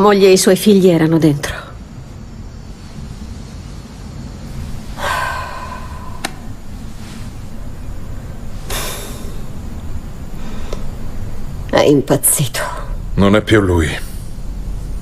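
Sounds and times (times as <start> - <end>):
low steady hum: 0.0 - 15.0
woman breathing: 4.5 - 11.4
breathy sighs: 4.9 - 6.6.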